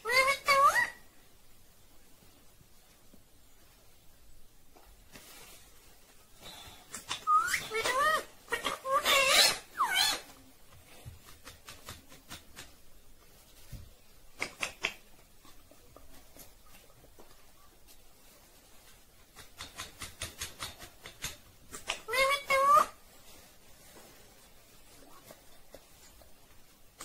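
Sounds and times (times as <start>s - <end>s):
parakeet whistle-like calls: 7.2s - 7.8s.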